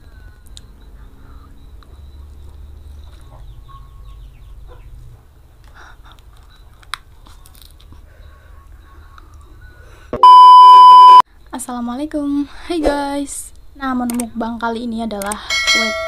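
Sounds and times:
electronic beep tone: 10.2 - 11.2.

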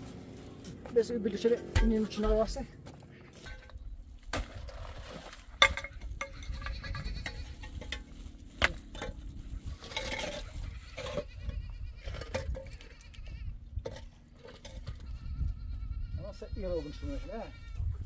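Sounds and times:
livestock bleating: 6.2 - 7.6, 10.4 - 13.6, 14.8 - 18.0.

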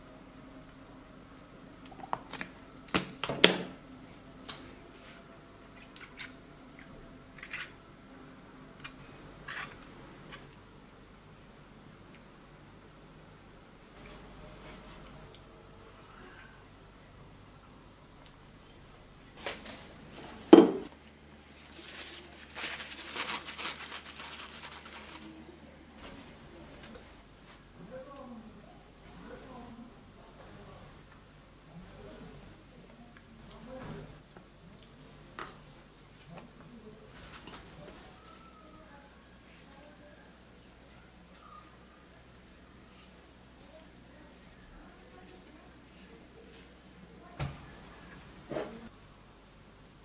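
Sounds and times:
paper towel rustling: 19.4 - 20.9, 21.5 - 27.7, 37.1 - 38.5.

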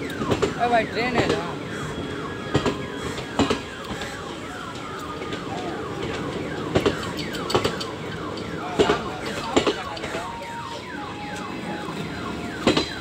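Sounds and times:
train wheels knocking over rail joints: 5.3 - 10.3, 12.6 - 13.0.

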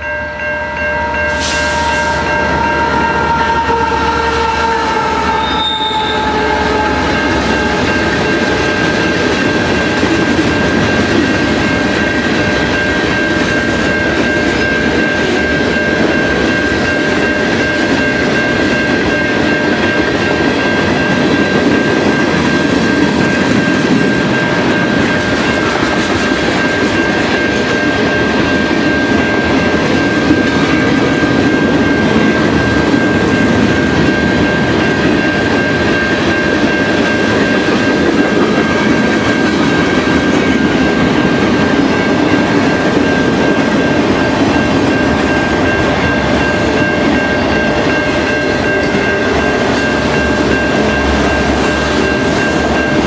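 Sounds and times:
locomotive horn: 0.0 - 8.2.

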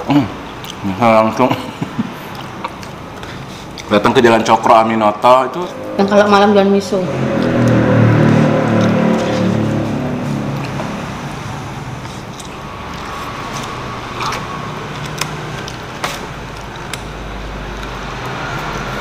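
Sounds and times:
street traffic: 0.0 - 19.0
vehicle engine hum: 1.7 - 19.0
eating utensils clicking: 2.2 - 4.5, 12.0 - 19.0.

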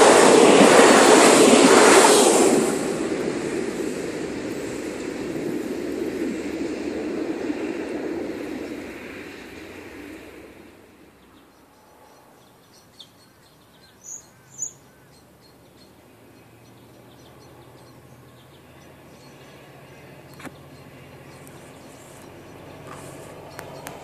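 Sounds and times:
faint outdoor background noise: 1.6 - 24.0
bird chirps: 11.2 - 24.0.

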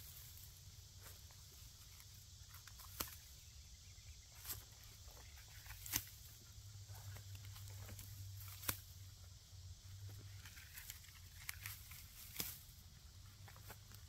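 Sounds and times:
sharp snaps of stalks: 0.0 - 3.4, 5.4 - 9.2, 10.0 - 12.8
rustling of weeds: 0.0 - 14.0.

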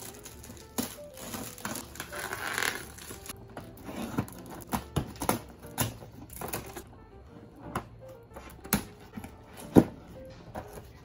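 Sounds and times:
plastic shrink wrap crinkling and tearing: 0.0 - 3.4.

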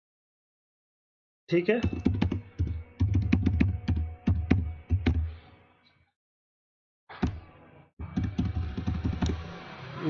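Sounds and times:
typing on keyboard: 1.8 - 5.2.

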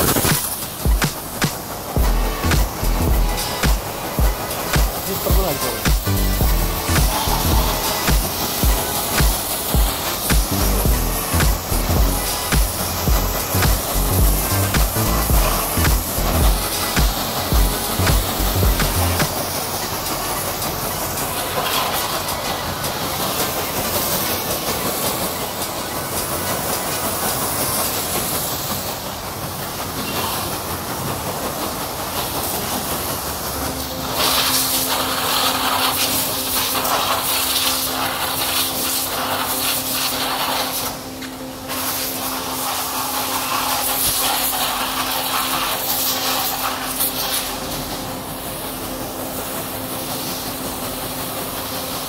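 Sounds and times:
steady low hum: 0.0 - 20.6
pressure washer jet hissing: 0.0 - 52.0.

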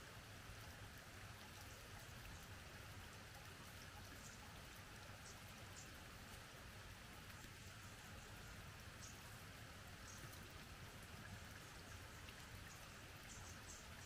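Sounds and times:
faint steady hiss: 0.0 - 14.0
faint ticks: 3.2 - 6.5, 7.2 - 14.0.

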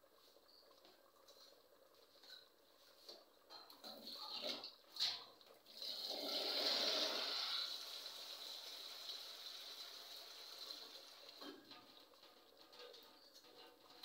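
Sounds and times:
faint water hiss: 0.0 - 11.6
water gushing: 5.6 - 11.5.

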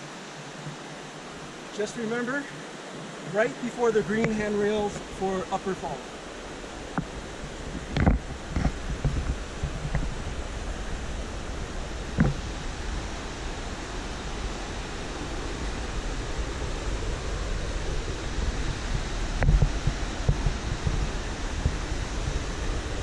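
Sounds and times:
mountain creek and waterfall rushing: 0.0 - 23.0.

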